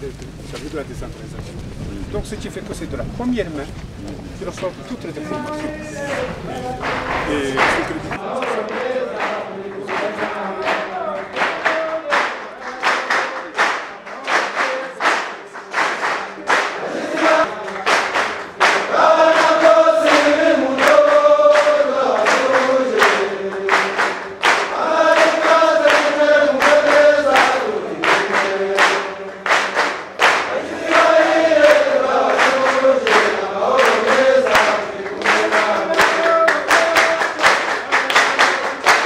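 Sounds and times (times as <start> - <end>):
choir singing in unison: 5.4 - 11.7, 16.5 - 39.0
steady percussive beat: 5.4 - 39.0.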